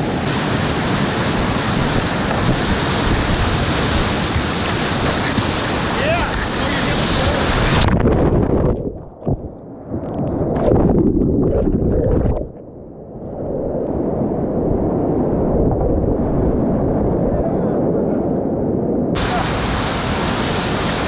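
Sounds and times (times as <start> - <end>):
whitewater rushing: 0.0 - 8.0, 19.2 - 21.0
muffled underwater gurgling: 2.6 - 13.8.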